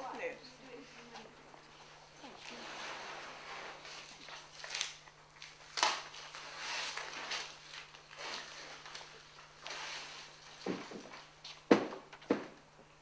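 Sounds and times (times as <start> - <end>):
faint low hum: 0.0 - 13.0
paper rustling: 2.3 - 11.6.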